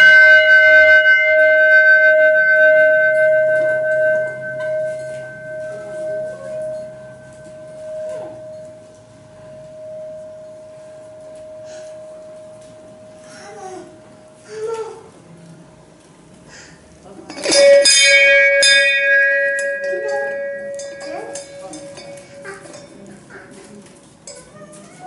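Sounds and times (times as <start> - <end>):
large brass bell ringing: 0.0 - 14.4, 17.3 - 25.0.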